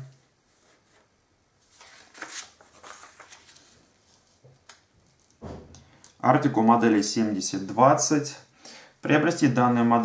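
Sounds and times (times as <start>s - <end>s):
paper sheet rustling and sliding: 0.5s - 4.4s.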